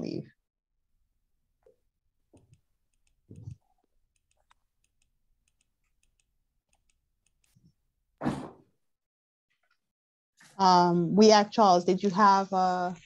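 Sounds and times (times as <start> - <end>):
faint clicks: 2.4 - 7.6.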